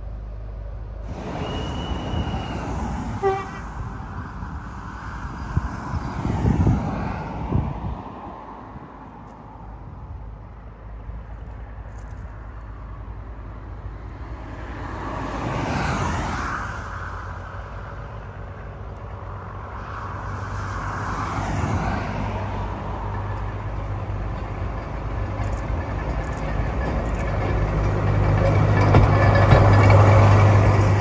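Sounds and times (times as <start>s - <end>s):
diesel locomotive engine hum: 0.0s - 31.0s
rushing noise: 1.0s - 7.6s.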